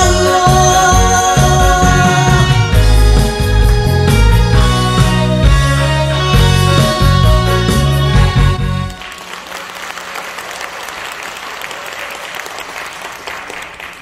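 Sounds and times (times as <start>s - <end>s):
loud music chords: 0.0s - 9.0s
audience applauding: 8.1s - 14.0s.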